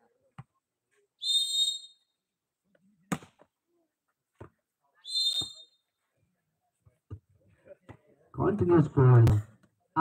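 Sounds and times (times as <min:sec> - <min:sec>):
referee's whistle blasts: 0:01.2 - 0:02.0, 0:05.1 - 0:05.8.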